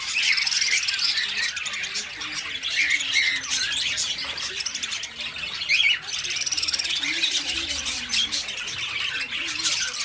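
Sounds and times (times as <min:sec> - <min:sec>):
budgerigars chattering: 0:00.0 - 0:10.0.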